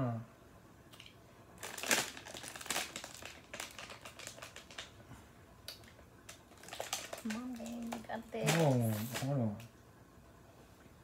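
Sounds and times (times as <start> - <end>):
plastic candy bag crinkling: 1.0 - 5.0, 5.6 - 9.4.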